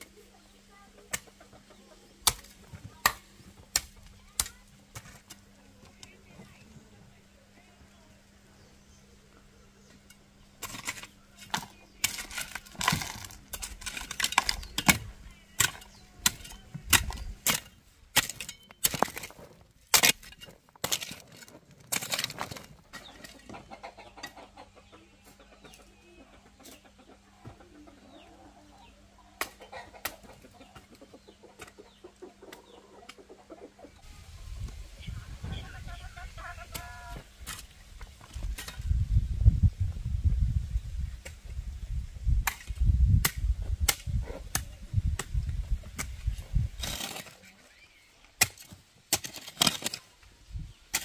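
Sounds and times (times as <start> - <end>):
digging tool striking ground: 2.2 - 5.4, 10.6 - 23.4, 42.4 - 47.4, 48.4 - 50.1.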